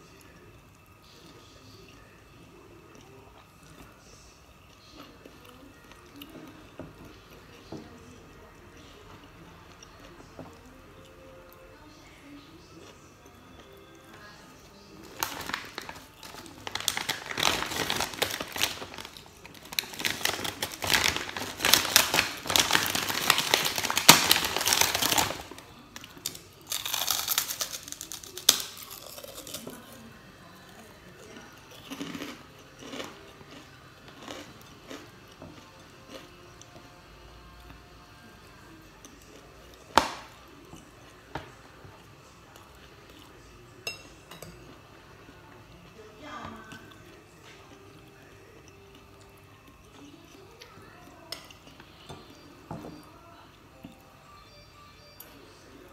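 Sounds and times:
cracker crunch: 14.8 - 30.1, 31.3 - 36.8
plastic bag crinkling: 15.1 - 25.6, 26.2 - 29.6
cutlery clinking on plates: 43.8 - 44.8.

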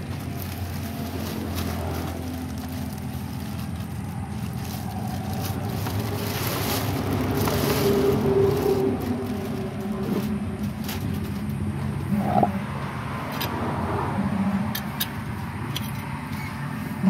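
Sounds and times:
plastic bag crinkling: 0.0 - 11.6.

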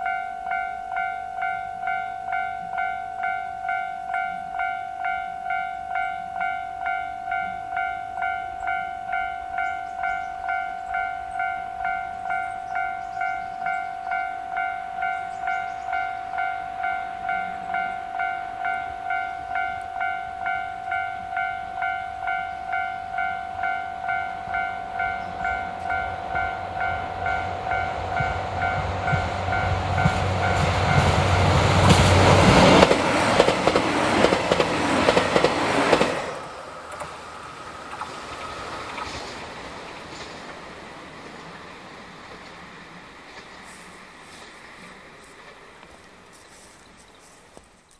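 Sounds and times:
level crossing warning bell: 0.0 - 32.9
diesel train passing: 0.0 - 47.2.

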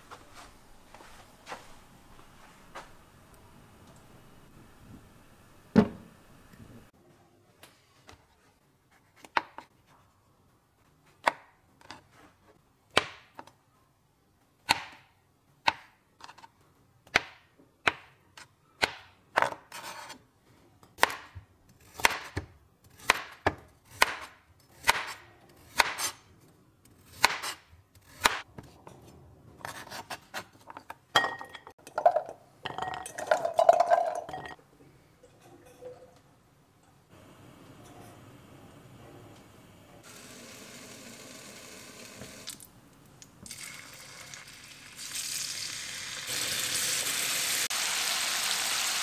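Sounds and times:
knife chopping on cutting board: 21.9 - 26.2, 27.1 - 28.4.

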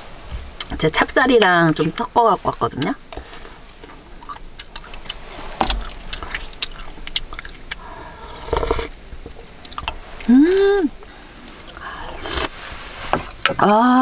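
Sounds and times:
person eating: 3.2 - 12.6
person humming: 10.3 - 11.0.

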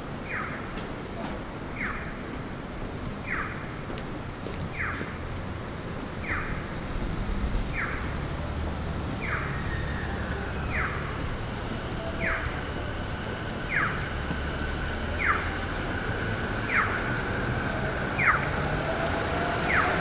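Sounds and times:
city traffic hum: 0.0 - 20.0
pedestrian crossing signal chirps: 3.2 - 3.8, 6.1 - 6.8, 7.7 - 18.8, 19.5 - 20.0.

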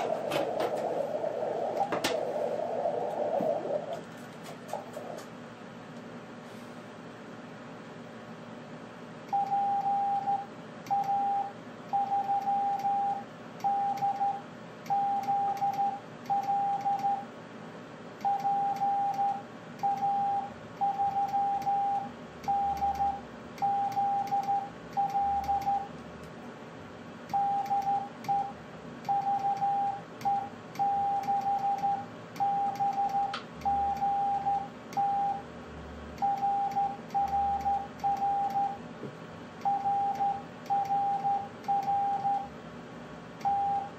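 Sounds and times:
morse code tone: 29.1 - 35.4, 36.2 - 38.8, 39.6 - 42.5, 43.4 - 43.9.

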